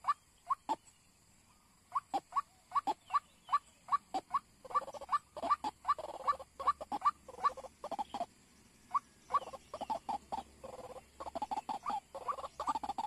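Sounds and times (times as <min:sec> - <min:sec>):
bird calling short repeated notes: 0:08.9 - 0:13.0.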